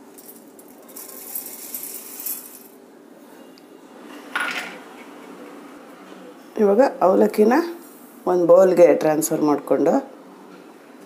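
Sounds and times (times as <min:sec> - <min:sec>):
rice flakes poured into jar: 0:00.2 - 0:02.8.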